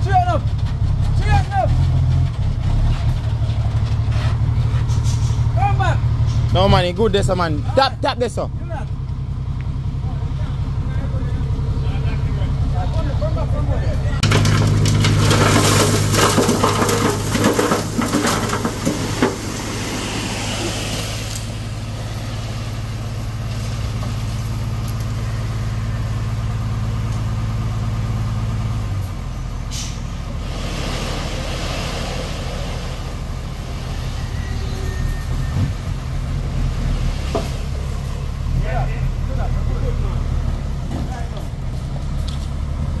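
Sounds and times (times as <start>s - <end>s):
truck engine humming: 0.0s - 43.0s
earth and stones pouring off truck: 14.2s - 25.2s.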